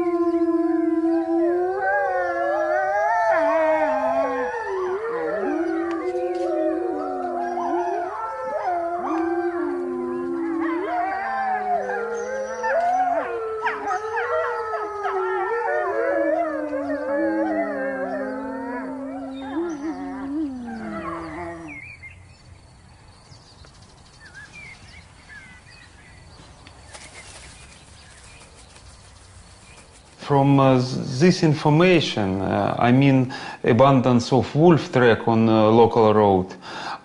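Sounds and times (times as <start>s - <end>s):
wolves howling: 0.0s - 21.9s.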